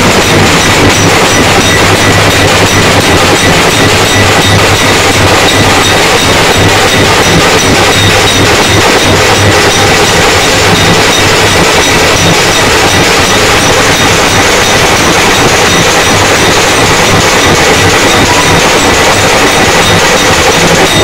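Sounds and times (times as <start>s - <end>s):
drums beaten with sticks: 0.0s - 21.0s.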